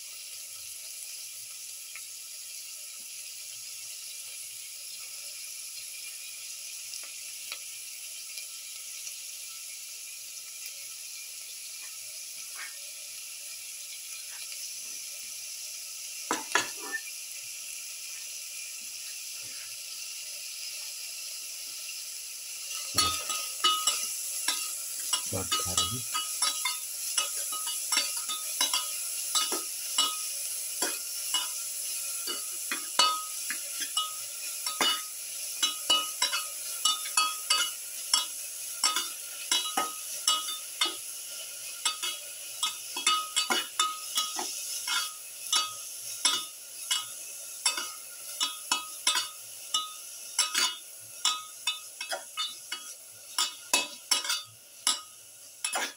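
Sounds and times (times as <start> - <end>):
onions sizzling in a pan: 0.0 - 55.9
spatula scraping a steel pan: 55.7 - 55.9.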